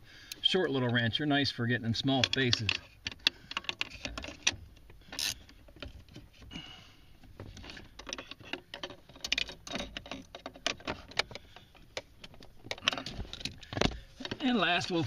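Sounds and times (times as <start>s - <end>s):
hand and tool rustling: 2.0s - 15.0s
wrench metal clicks and rattles: 2.1s - 6.2s, 7.4s - 14.4s.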